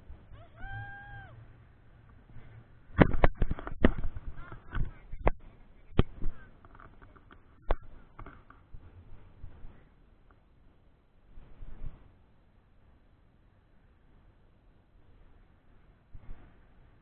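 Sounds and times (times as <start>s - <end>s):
sharp pops and knocks on microphone: 2.9s - 8.8s.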